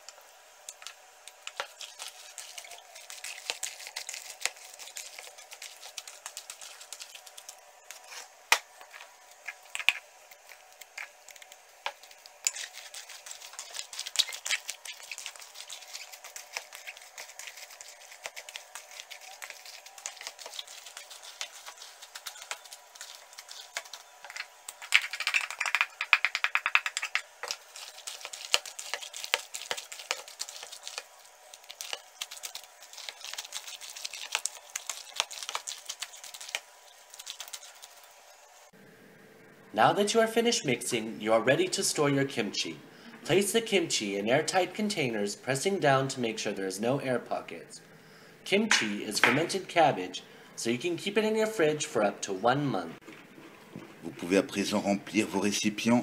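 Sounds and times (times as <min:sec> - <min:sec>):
hands mixing wet cabbage: 0:00.7 - 0:38.4.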